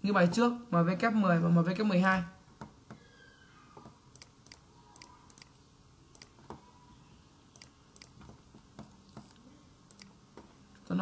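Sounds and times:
mouse and keyboard clicking: 4.1s - 6.6s, 7.6s - 10.1s.

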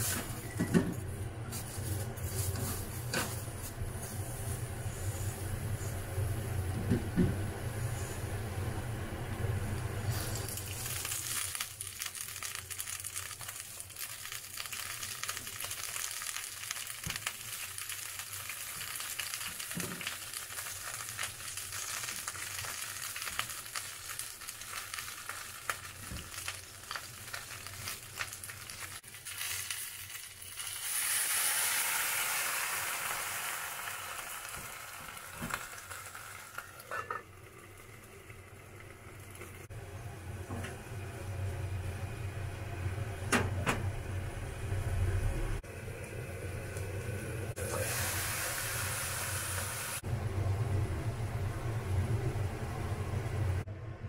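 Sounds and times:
loud hiss of boiling water: 0.0s - 0.6s, 2.2s - 6.8s, 7.4s - 28.8s, 29.6s - 37.8s, 45.6s - 50.3s
oil sizzling with fine crackle: 0.0s - 39.8s, 45.6s - 50.1s.

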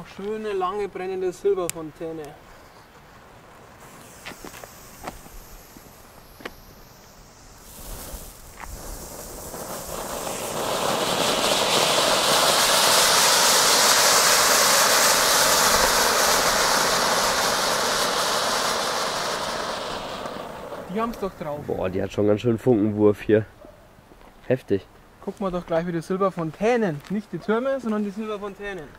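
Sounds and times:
firework fountain hissing: 0.0s - 23.1s.

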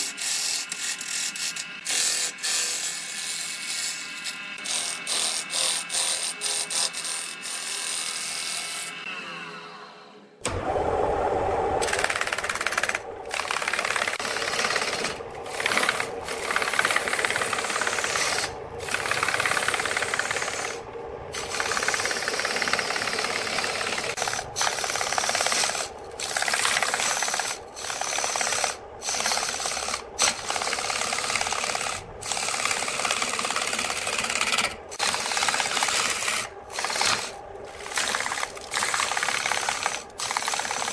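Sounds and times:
lathe whirring: 10.4s - 40.9s
gouge scraping wood on lathe: 13.5s - 40.9s.

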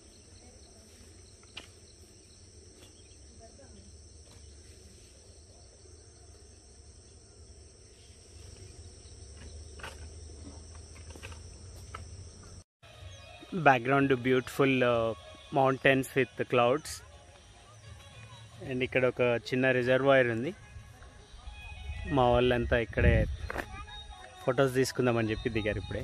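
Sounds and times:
insects chirring: 0.0s - 13.3s.

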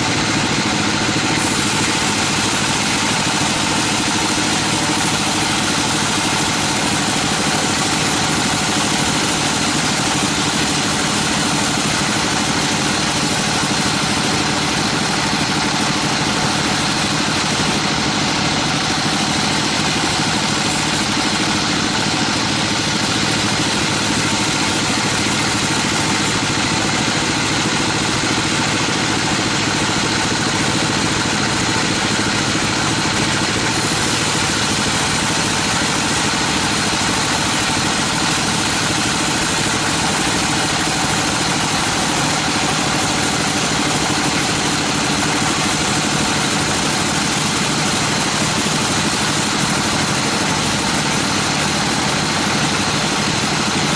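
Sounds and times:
band saw sawing through log: 0.0s - 53.9s.

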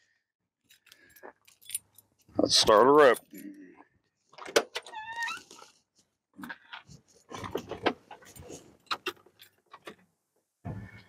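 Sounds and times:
keys jangling: 0.7s - 2.1s.

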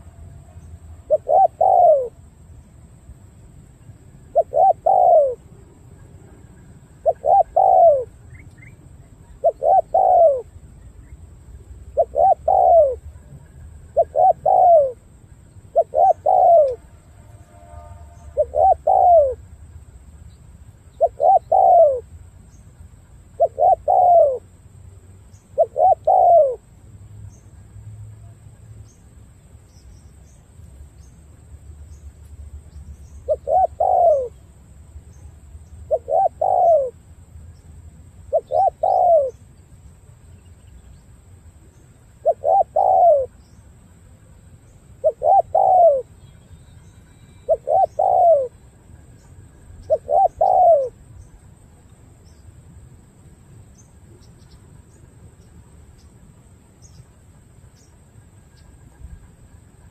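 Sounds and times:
dove cooing: 1.0s - 2.2s, 4.3s - 5.5s, 7.0s - 8.2s, 9.3s - 10.6s, 11.9s - 15.0s, 15.7s - 16.9s, 18.4s - 19.4s, 21.0s - 22.1s, 23.4s - 24.5s, 25.6s - 26.6s, 33.3s - 34.4s, 35.9s - 37.0s, 38.3s - 39.4s, 42.2s - 43.4s, 45.0s - 46.2s, 47.2s - 48.6s, 49.8s - 51.0s.

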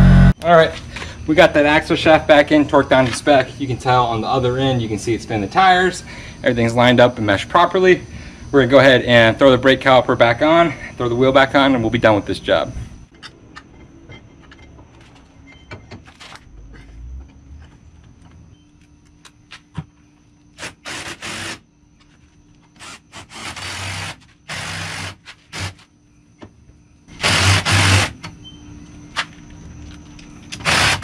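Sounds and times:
power tool bursts: 0.0s - 0.4s, 20.6s - 21.6s, 22.8s - 25.8s, 27.2s - 28.2s, 30.6s - 31.0s.

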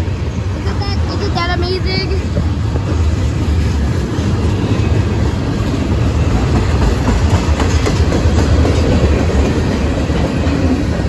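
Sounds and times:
train wheels rumbling on rail: 0.0s - 11.0s
wheels clicking over rail joints: 5.1s - 11.0s.

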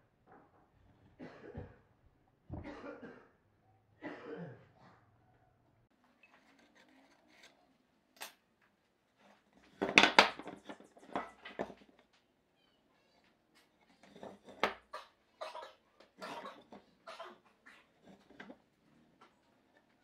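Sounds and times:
wooden pieces clattering together: 9.6s - 12.0s, 14.0s - 14.9s.

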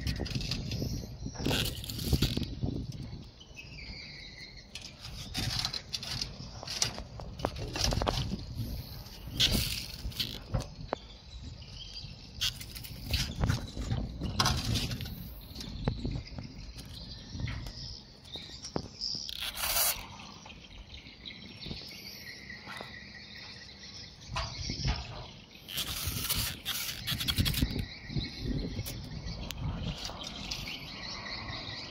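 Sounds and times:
birds chirping: 0.0s - 31.9s
insects chirping: 0.0s - 31.9s
spray bottle squirting: 19.3s - 20.2s.

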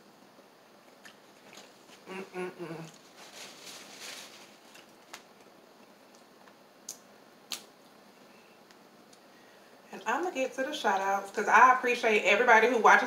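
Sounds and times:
paper towel rustling: 2.9s - 5.2s.

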